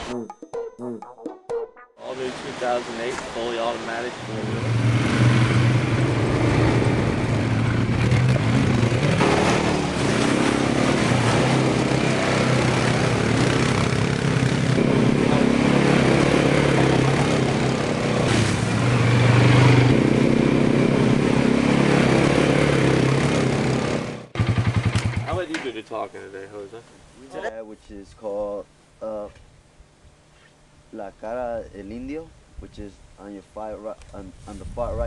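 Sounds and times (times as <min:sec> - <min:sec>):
quad bike engine humming: 0:03.9 - 0:25.7.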